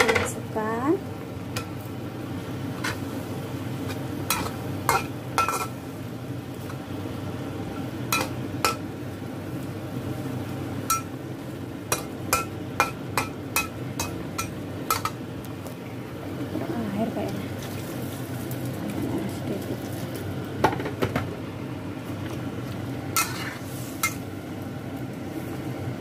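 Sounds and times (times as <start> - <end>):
metal spoon scraping a wok: 23.2 - 24.2.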